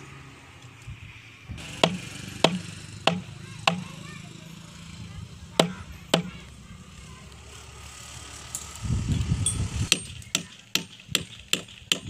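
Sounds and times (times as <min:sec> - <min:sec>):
sharp knock: 0:01.8 - 0:03.9.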